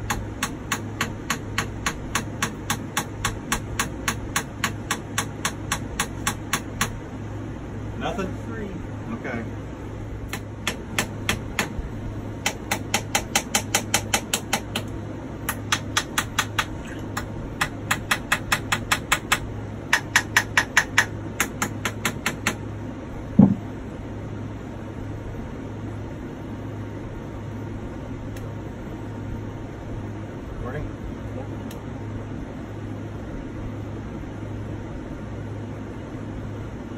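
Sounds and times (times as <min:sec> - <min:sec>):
heavier knock: 0:23.4 - 0:23.7.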